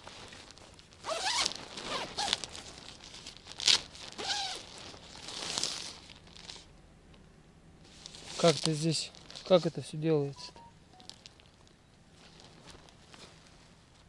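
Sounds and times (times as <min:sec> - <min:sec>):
tent fabric rustling: 0:00.0 - 0:06.7, 0:07.8 - 0:09.9, 0:11.0 - 0:14.0
tent zipper being pulled: 0:01.0 - 0:02.8, 0:03.6 - 0:05.9.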